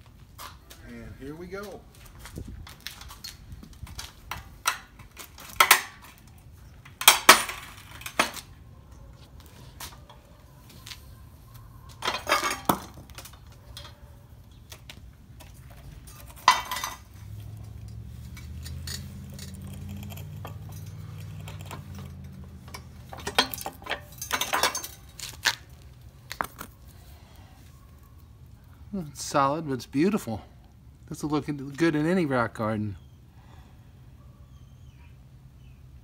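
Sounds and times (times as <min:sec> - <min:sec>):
rock pieces scraping on steel: 0:16.0 - 0:25.7
rock crunching and cracking: 0:25.0 - 0:27.0.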